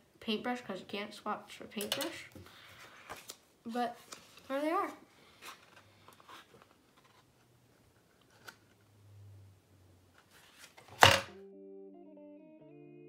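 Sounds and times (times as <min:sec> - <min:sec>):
paper rustling and clicking: 0:03.0 - 0:03.4.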